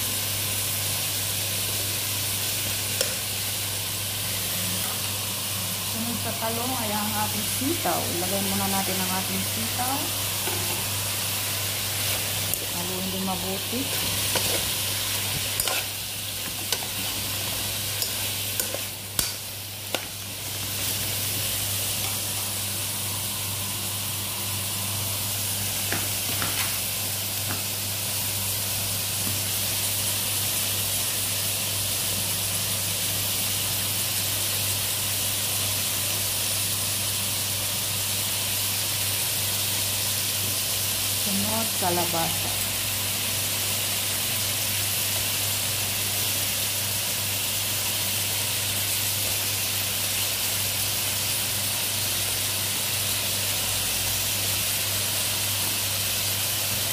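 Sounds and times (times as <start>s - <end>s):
vegetables sizzling in oil: 0.0s - 56.9s
spoon scraping a pan: 13.8s - 20.2s.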